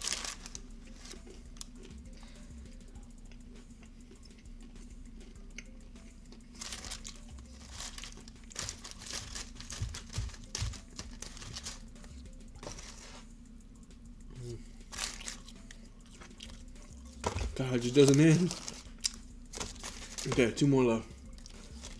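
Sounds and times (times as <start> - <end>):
wax paper crinkling: 0.0 - 1.2, 6.6 - 11.9, 14.9 - 15.4, 17.2 - 20.6, 21.4 - 21.9.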